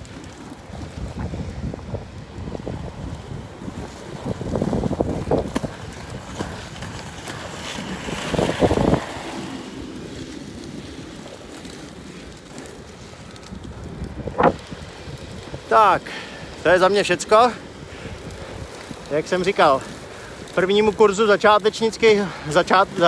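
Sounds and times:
skates rolling on asphalt: 0.0 - 23.0
wind buffeting microphone: 0.0 - 23.0.

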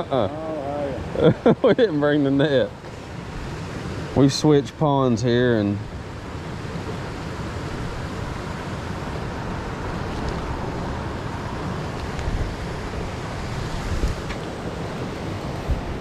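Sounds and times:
wind buffeting microphone: 5.8 - 16.0.

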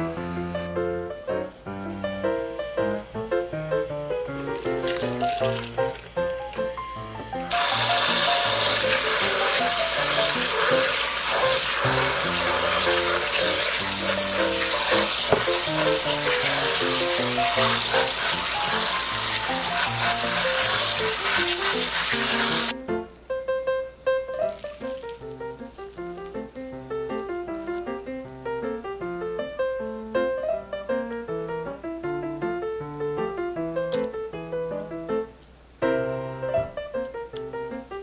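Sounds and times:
tap water running: 3.9 - 22.8, 24.3 - 27.9
noodles rubbed by hand: 7.6 - 22.7.

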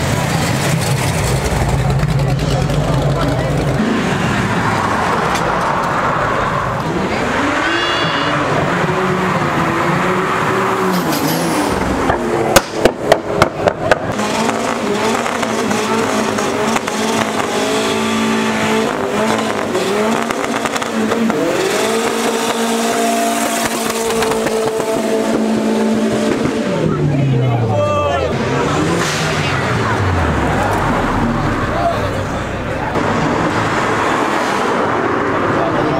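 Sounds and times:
loud exhaust bangs: 0.0 - 27.2
car engines revving: 0.0 - 35.9.

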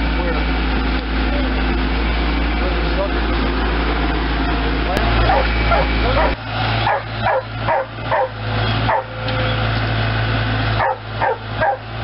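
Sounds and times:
loader engine running: 0.0 - 12.0
dog barking: 5.3 - 9.1, 10.8 - 11.9.

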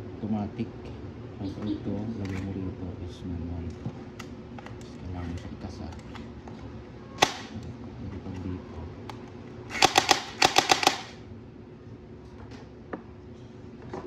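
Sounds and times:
toy blaster clicking: 9.7 - 11.2.

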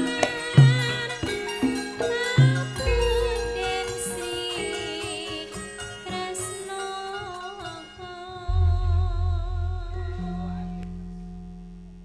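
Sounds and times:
woman singing a long note: 2.3 - 11.4
large gong struck: 8.5 - 12.0.

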